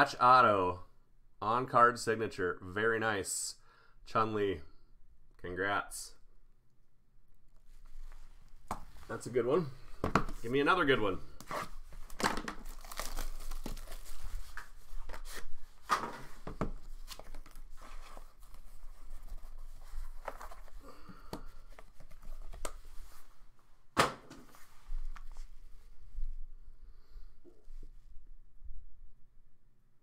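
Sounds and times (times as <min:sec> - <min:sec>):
wrapper crinkling: 0:11.7 - 0:15.4.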